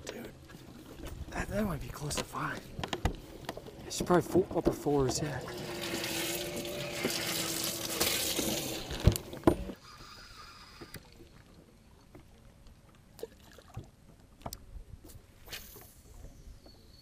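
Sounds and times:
water splashing and rushing: 4.3s - 9.4s.

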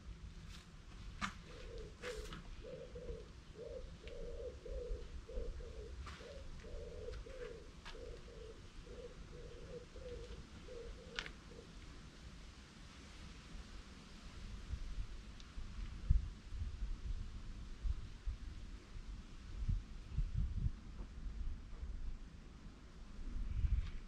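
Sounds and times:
dove cooing: 1.4s - 11.8s.

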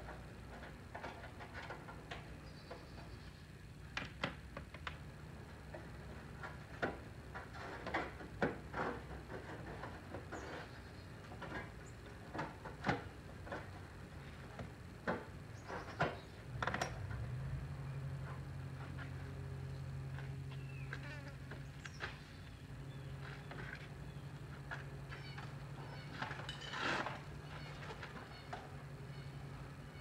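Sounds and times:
low hum: 10.7s - 30.0s.

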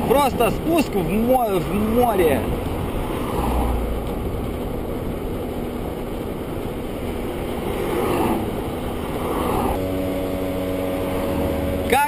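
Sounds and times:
wind rush on microphone: 0.0s - 12.0s
scooter engine running: 3.9s - 12.0s.

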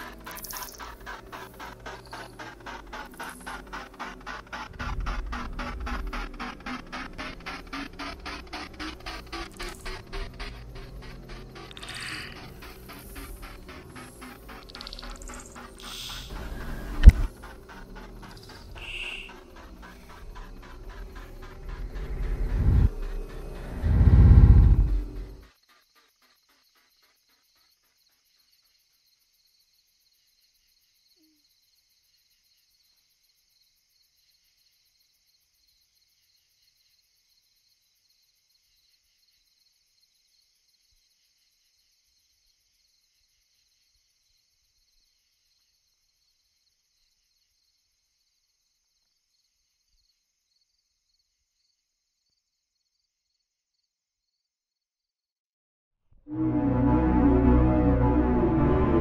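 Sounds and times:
faint high pulsing chirr: 0.0s - 25.5s.

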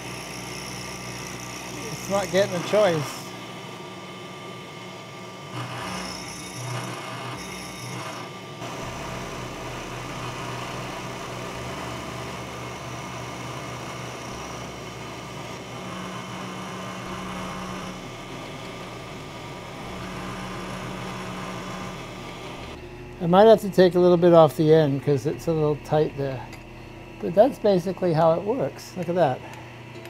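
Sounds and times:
cutter cutting metal: 0.0s - 3.5s, 5.3s - 22.8s
milling machine hum: 0.0s - 30.0s.

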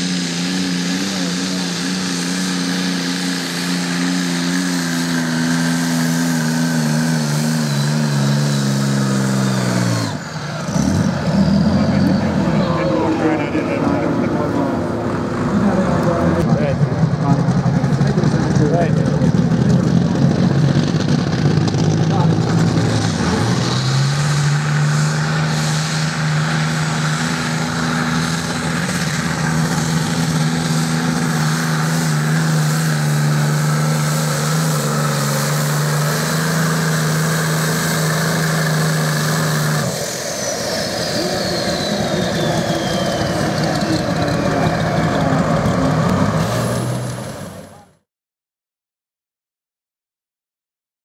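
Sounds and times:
turbocharger whistle: 0.0s - 14.9s, 22.9s - 47.8s
diesel engine running flat out: 0.0s - 48.1s.

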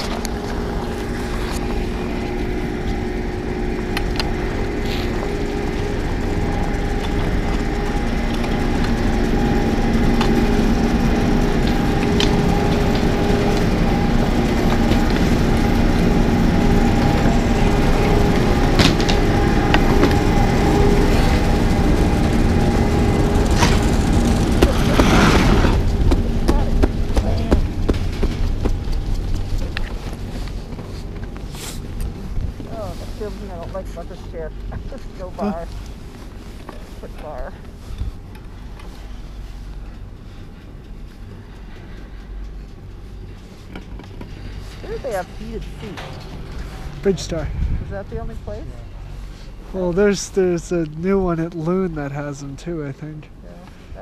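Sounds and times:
chairlift machinery humming: 0.0s - 54.0s.

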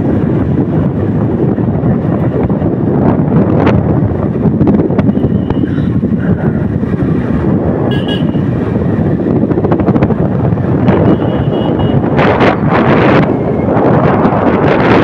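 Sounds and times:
wind rushing over microphone: 0.0s - 15.0s
motorcycle engine: 3.5s - 15.0s
vehicle horn toots: 7.9s - 8.5s, 10.9s - 12.1s.

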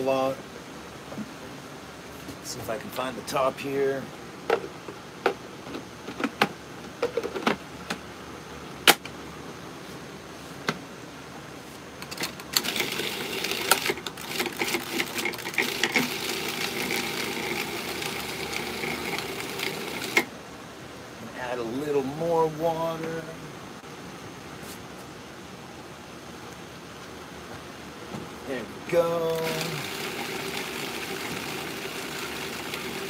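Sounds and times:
food processor motor blending: 12.6s - 20.3s, 29.3s - 33.0s.

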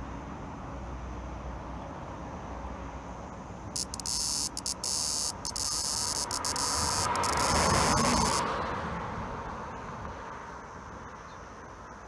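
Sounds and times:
cicada buzzing: 3.7s - 8.6s.

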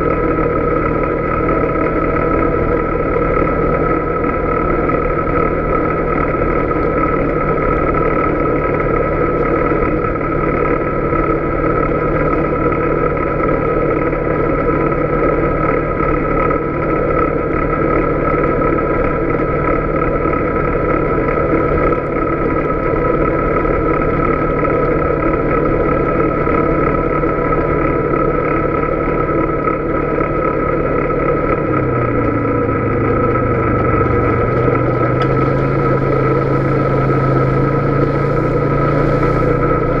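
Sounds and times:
atv engine running: 0.0s - 40.0s
high whine: 29.1s - 40.0s.

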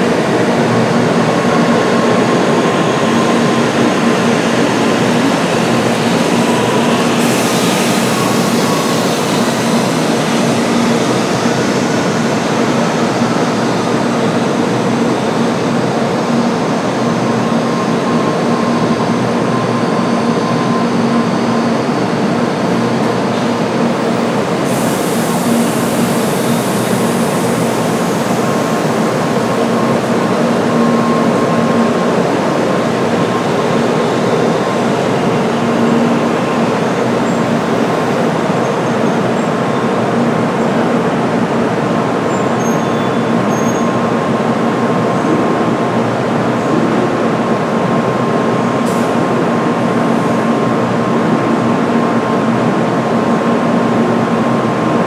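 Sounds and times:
train rumbling past: 0.0s - 55.0s
high hiss: 24.6s - 29.4s.

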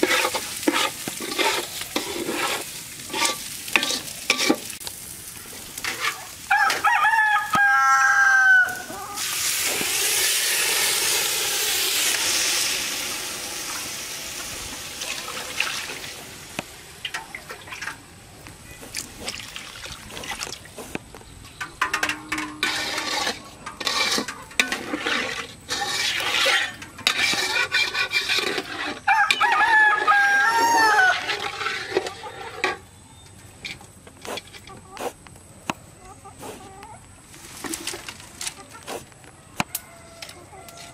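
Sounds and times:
ladle scraping metal pot: 0.0s - 4.8s, 5.8s - 6.8s, 21.6s - 32.8s
food sizzling in a pot: 0.0s - 17.9s
rooster crowing: 6.5s - 9.2s, 29.1s - 31.3s, 39.6s - 40.9s.

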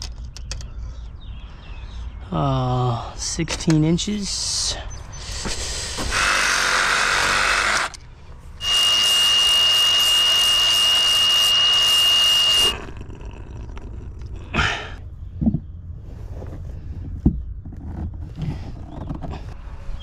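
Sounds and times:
power tool whining: 5.9s - 14.6s.

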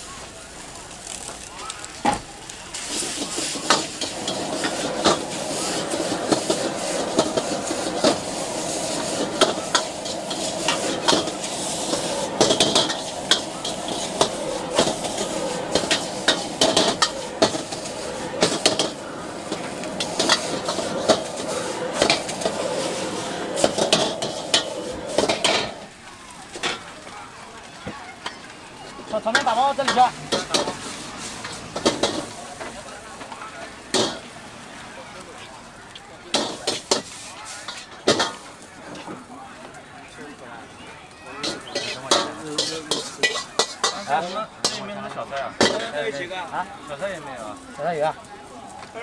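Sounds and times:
frying sizzle: 0.0s - 49.0s
metal ladle clanking on wok: 3.2s - 25.8s, 41.4s - 44.9s.

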